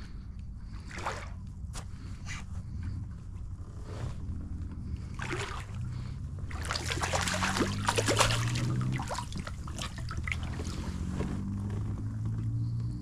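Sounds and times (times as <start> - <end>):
fish splashing in water: 5.1 - 11.0
dripping water: 5.2 - 10.8.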